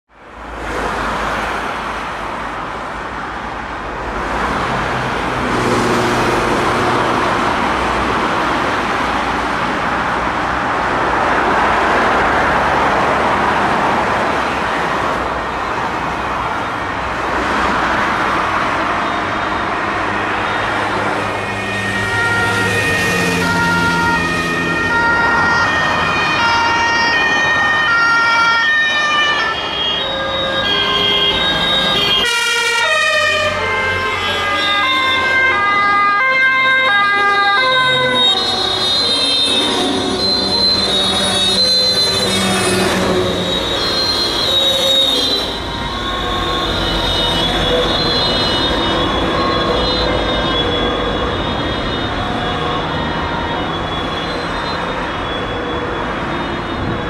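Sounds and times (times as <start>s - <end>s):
vehicle engines and tyres roaring: 0.1s - 57.0s
two-tone siren: 15.4s - 57.0s.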